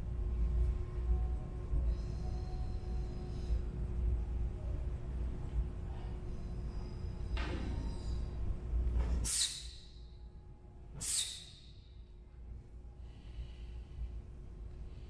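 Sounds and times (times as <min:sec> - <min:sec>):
low steady hum: 0:00.0 - 0:15.0
soft breath: 0:01.7 - 0:04.4, 0:05.7 - 0:08.6, 0:12.8 - 0:15.0.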